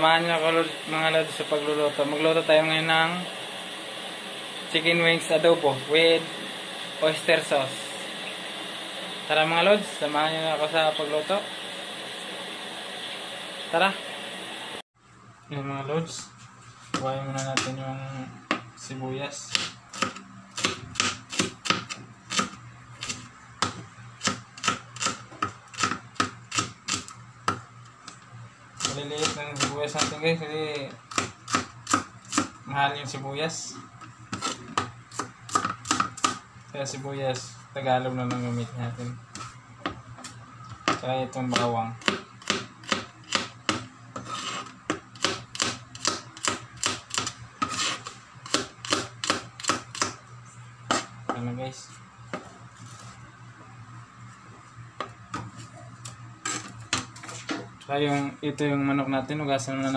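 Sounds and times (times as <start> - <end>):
knife chopping on cutting board: 40.9 - 50.2.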